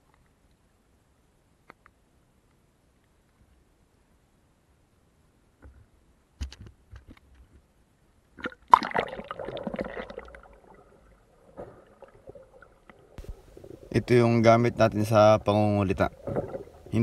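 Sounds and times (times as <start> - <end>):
water rushing and gurgling: 8.8 - 17.0.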